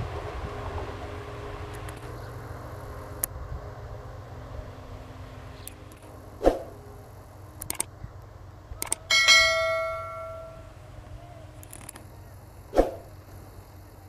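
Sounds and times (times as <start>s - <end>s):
sharp mouse clicks: 7.6s - 7.9s, 8.8s - 9.0s
bright bell ding: 9.1s - 10.8s.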